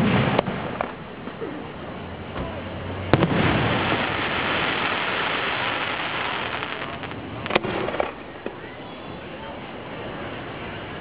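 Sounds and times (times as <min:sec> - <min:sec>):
firework launch bang: 0:00.0 - 0:01.0, 0:03.1 - 0:08.6
fireworks crackling rumble: 0:00.0 - 0:11.0.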